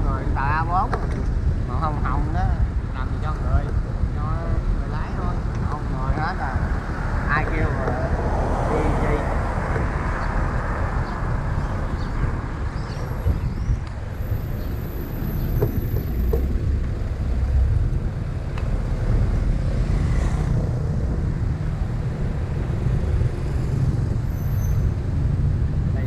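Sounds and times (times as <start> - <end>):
vehicle road rumble: 0.0 - 26.0.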